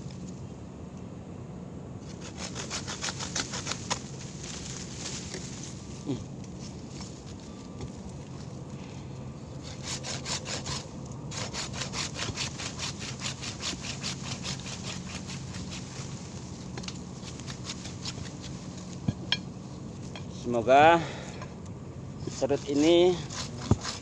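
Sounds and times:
hand saw cutting wood: 2.1 - 4.0, 9.6 - 16.2, 17.2 - 18.6, 22.3 - 24.0.

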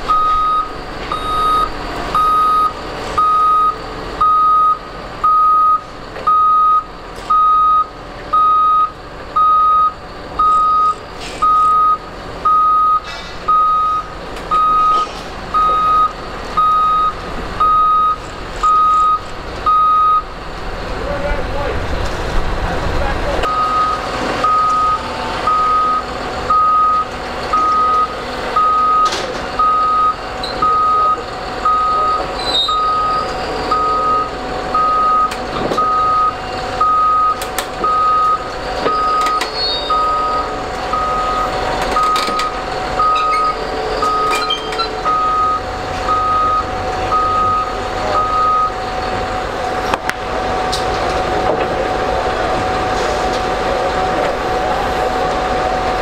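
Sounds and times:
backup alarm beeping: 0.0 - 20.4, 23.4 - 48.8
engine running: 0.0 - 56.0.

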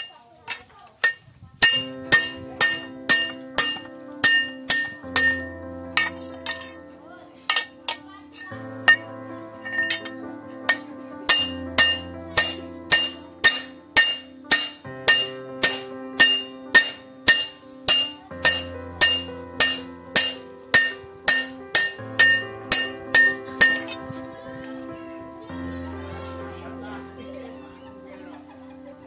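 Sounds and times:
hammer blows on steel plate: 1.0 - 6.6, 10.7 - 24.0
background music with held chords: 1.6 - 29.0.

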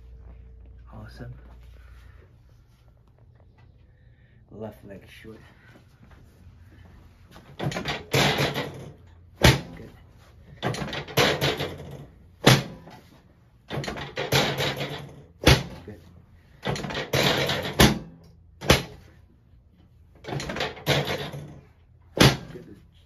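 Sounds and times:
drop table thudding: 7.5 - 9.8, 10.6 - 13.1, 13.7 - 15.8, 16.6 - 19.2, 22.2 - 22.6.

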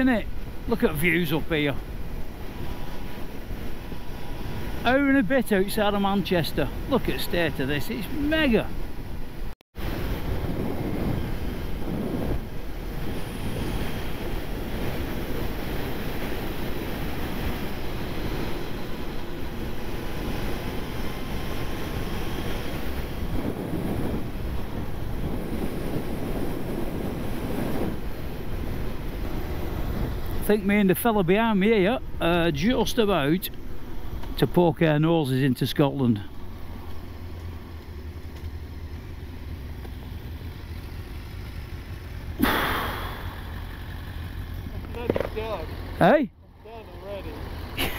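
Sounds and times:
wind rush on microphone: 0.0 - 34.5
motorcycle engine: 36.4 - 47.9
sudden loud burst of noise: 42.4 - 43.7.

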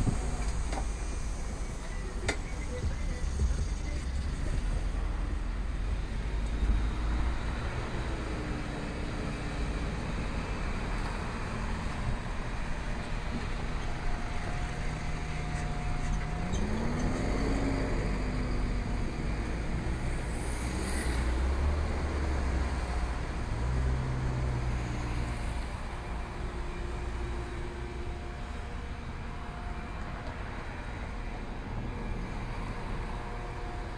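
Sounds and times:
distant passenger trains: 0.0 - 33.9
road traffic rumble: 0.0 - 33.9.

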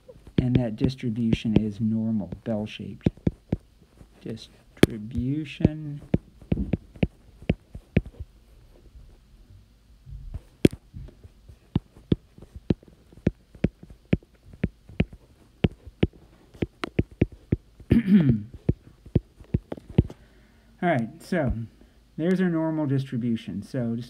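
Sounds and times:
stylus tapping on glass screen: 11.7 - 17.6.

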